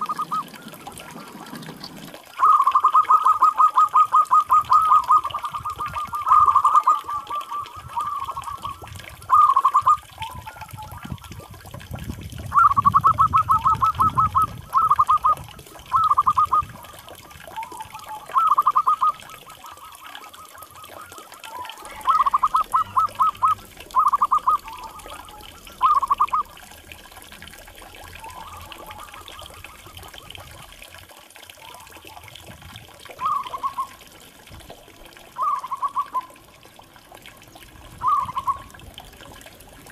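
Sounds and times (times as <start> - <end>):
dove cooing: 0.0 - 11.1, 12.5 - 27.2, 27.8 - 30.8, 33.1 - 34.0, 35.4 - 36.5, 38.0 - 38.8.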